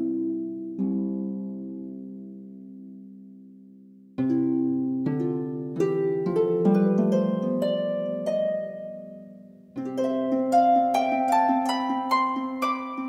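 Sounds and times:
plucked instrumental melody: 4.2 - 13.0.

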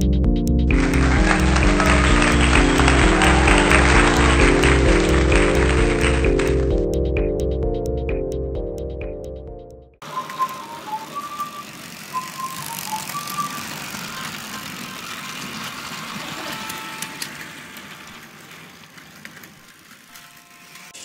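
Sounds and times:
toy trains whirring and clattering: 0.8 - 6.6, 10.0 - 21.0.

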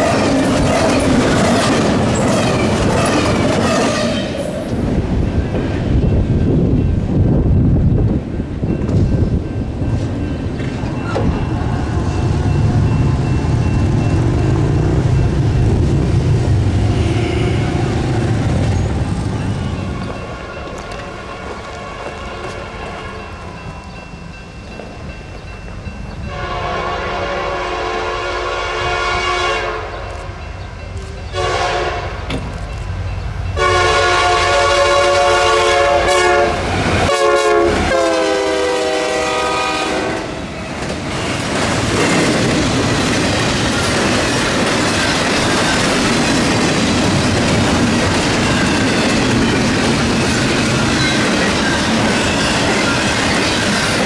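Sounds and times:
train wheels clacking over rails: 0.0 - 7.0, 36.6 - 54.0
locomotive air horn blasts: 3.6 - 4.4, 26.3 - 30.0, 31.3 - 32.2, 33.6 - 40.4.

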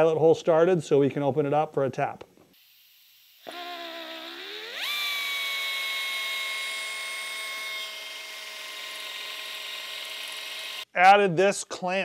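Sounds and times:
handheld drill whining: 2.5 - 10.9.

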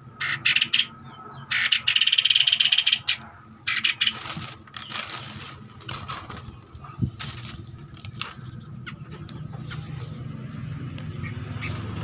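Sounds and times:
birds harsh chattering calls: 0.0 - 12.0
wings flapping against wire cage: 3.7 - 8.5.

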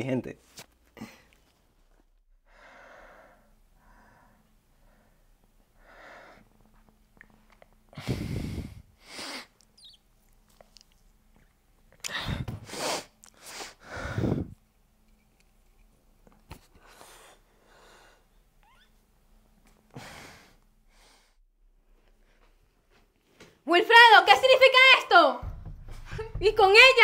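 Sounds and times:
man breathing heavily: 2.5 - 6.7, 8.0 - 9.6, 12.1 - 14.6, 19.9 - 21.4.

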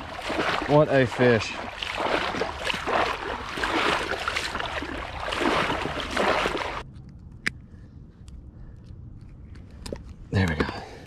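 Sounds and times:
marsh water sloshing and splashing: 0.0 - 6.8.

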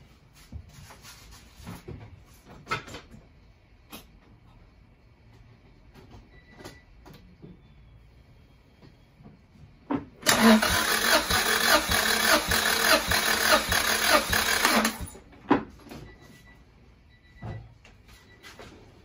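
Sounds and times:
engine cranking by starter motor: 10.2 - 15.2.

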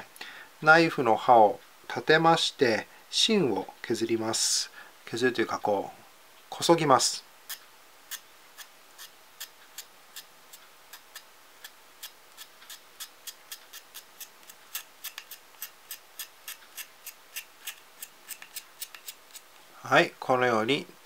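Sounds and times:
knife scraping pencil: 7.5 - 10.3, 10.9 - 19.5.

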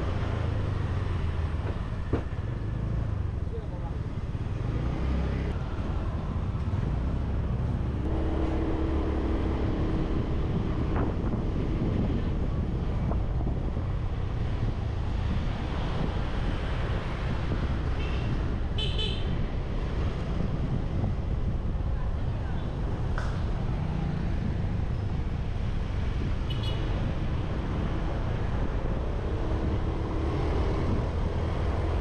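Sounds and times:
street traffic: 0.0 - 32.0
short engine drone: 8.0 - 11.1.

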